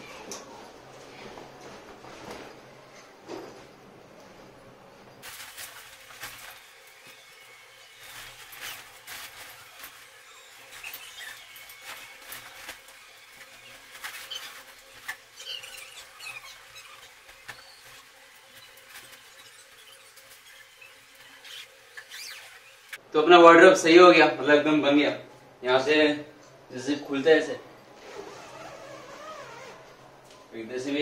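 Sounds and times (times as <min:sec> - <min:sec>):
fabric rustling and scraping: 0:00.0 - 0:23.0, 0:28.0 - 0:30.0
short squeaks: 0:06.2 - 0:23.0.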